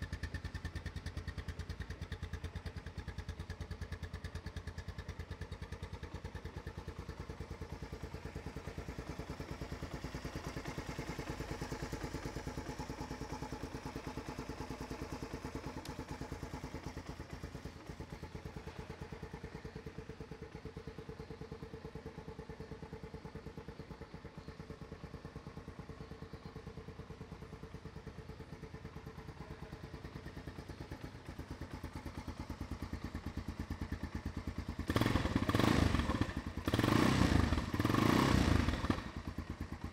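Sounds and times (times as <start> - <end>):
atv engine idling: 0.0 - 39.9.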